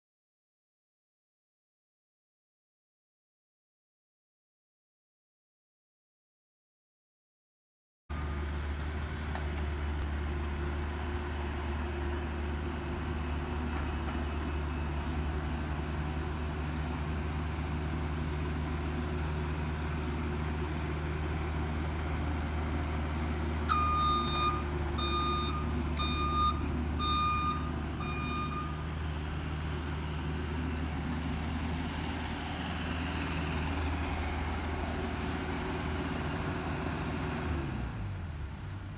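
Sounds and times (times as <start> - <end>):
excavator diesel engine running: 8.1 - 38.9
backup alarm beeps: 23.7 - 28.8.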